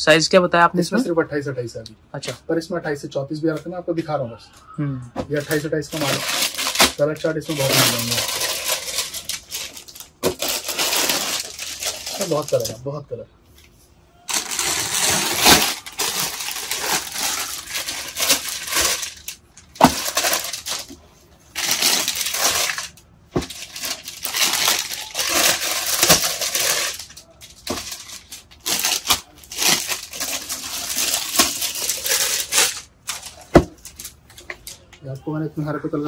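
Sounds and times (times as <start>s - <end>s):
packaging rustling and crinkling: 5.3s - 12.8s, 14.3s - 34.8s.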